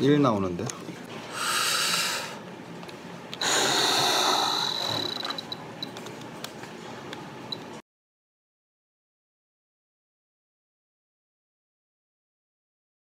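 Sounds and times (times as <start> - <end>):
forceful exhaled breath: 1.3 - 2.4, 3.4 - 5.1
steady high whine: 1.3 - 6.0.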